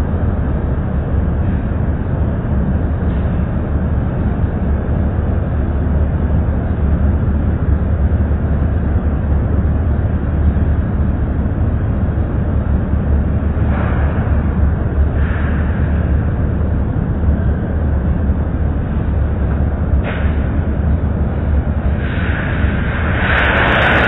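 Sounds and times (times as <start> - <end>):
machinery low rumble: 0.0 - 24.0
high hiss: 22.0 - 24.0.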